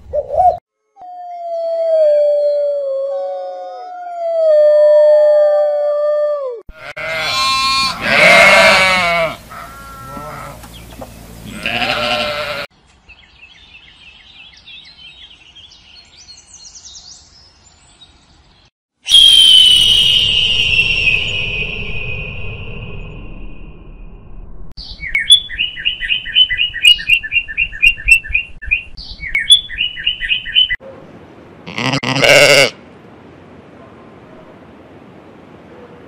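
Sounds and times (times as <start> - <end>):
animal howls: 1.0 - 6.6
sheep bleating: 6.7 - 10.6, 11.5 - 12.7, 31.7 - 32.8
raptor scream: 6.9 - 9.6
faint high chirps: 19.1 - 23.9.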